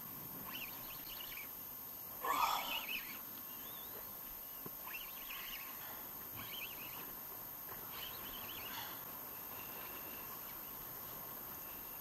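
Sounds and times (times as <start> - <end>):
wind: 0.0 - 12.0.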